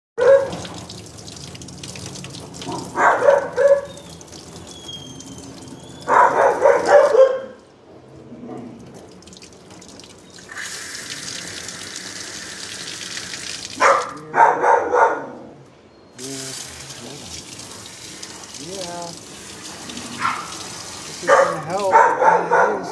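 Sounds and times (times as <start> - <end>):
dog barking: 0.2 - 0.8, 2.6 - 4.1, 6.0 - 7.6, 13.8 - 15.6, 20.1 - 22.9
water running from hose sprayer: 0.2 - 7.6, 8.8 - 14.2, 16.2 - 22.6.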